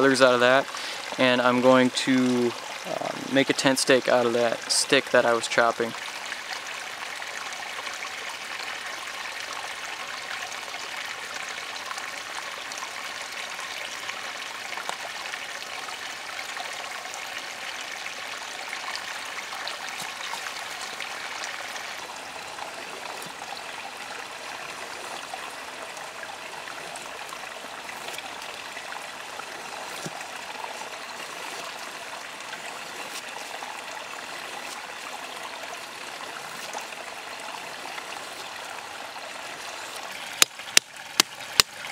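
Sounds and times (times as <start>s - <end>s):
flowing stream: 0.0s - 41.9s.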